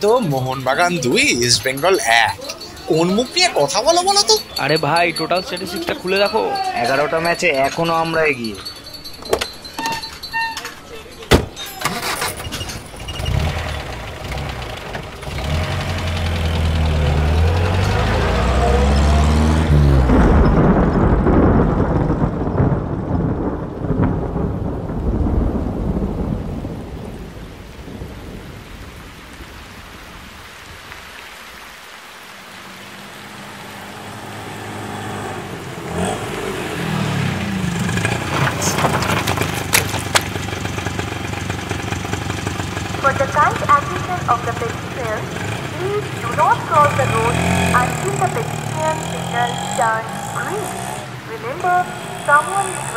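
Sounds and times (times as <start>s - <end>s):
heavy vehicle pulling away: 11.6s - 22.2s, 32.6s - 52.9s
vehicle approaching: 11.8s - 22.6s, 32.4s - 52.9s.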